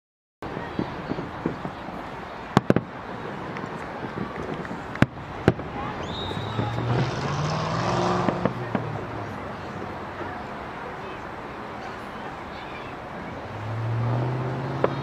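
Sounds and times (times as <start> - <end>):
distant fireworks bangs: 0.5 - 10.4, 14.0 - 15.0
vehicle engine passing: 6.4 - 10.1, 13.4 - 15.0.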